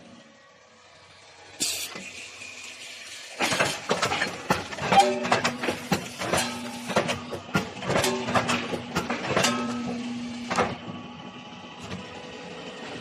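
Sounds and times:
air hissing: 0:01.6 - 0:03.4.

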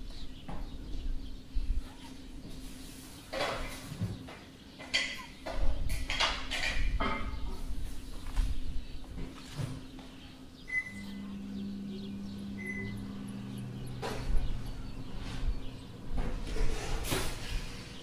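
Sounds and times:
low steady hum: 0:09.9 - 0:18.0.

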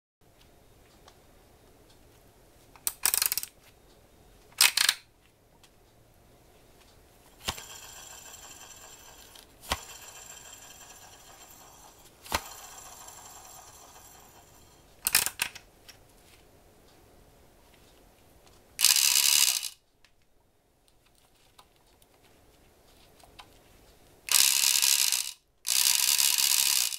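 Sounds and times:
fishing reel clicks rattling: 0:02.9 - 0:03.5, 0:04.6 - 0:05.0, 0:15.0 - 0:15.5, 0:18.8 - 0:19.8, 0:24.3 - 0:26.9
electric fishing reel whirring: 0:18.8 - 0:19.8, 0:24.3 - 0:26.9.

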